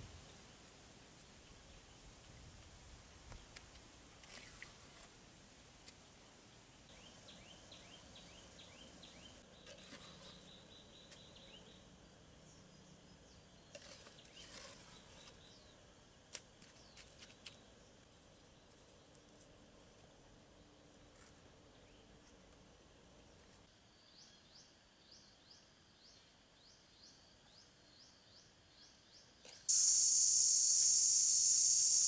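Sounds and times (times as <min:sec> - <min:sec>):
stones and hand tool scraping: 0:09.6 - 0:10.4, 0:13.7 - 0:15.4.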